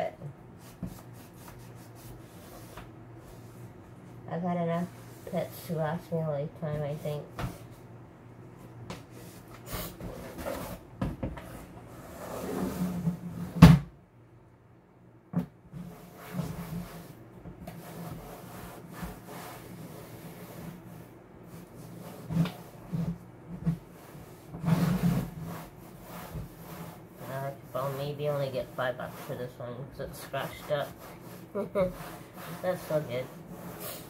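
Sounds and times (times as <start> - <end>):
cloth rubbing plastic: 15.7 - 34.0.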